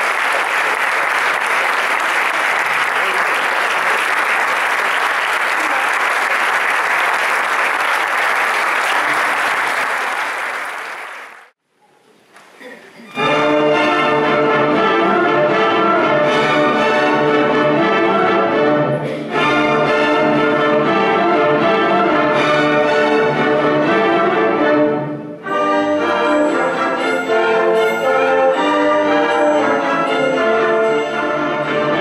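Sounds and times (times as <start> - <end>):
audience applause: 0.0 - 11.5
orchestra playing with strings: 13.1 - 32.0.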